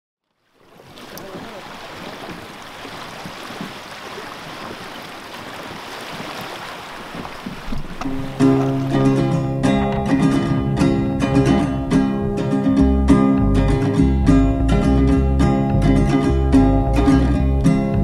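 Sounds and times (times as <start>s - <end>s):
sea water lapping: 0.2s - 12.8s
acoustic guitar music: 7.7s - 18.0s.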